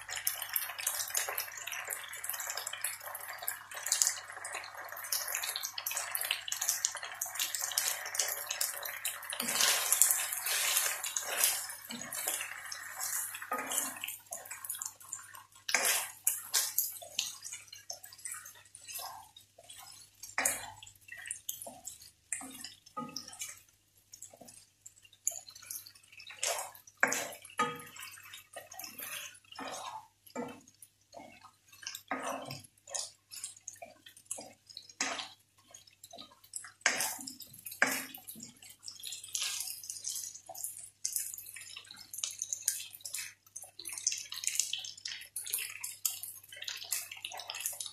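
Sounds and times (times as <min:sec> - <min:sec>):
food frying crackling: 0:00.0 - 0:47.9
spatula scraping a frying pan: 0:07.3 - 0:20.9, 0:25.2 - 0:40.6.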